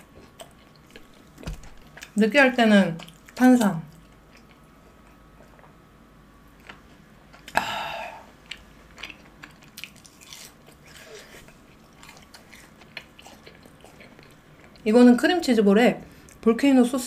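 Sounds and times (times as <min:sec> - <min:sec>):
chewing crispy food: 0:00.0 - 0:02.2, 0:02.9 - 0:05.7, 0:08.4 - 0:14.9.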